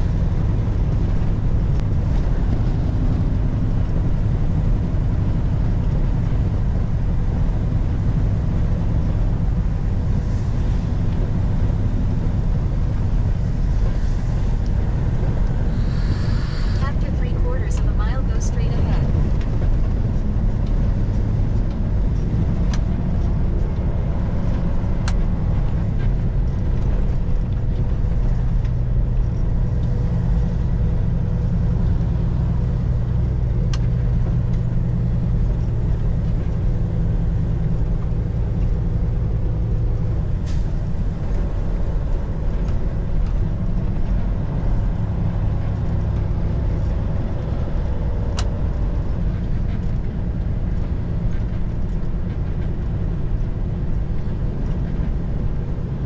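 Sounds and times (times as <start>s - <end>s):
road noise: 0.0s - 56.0s
truck diesel engine droning: 0.0s - 56.0s.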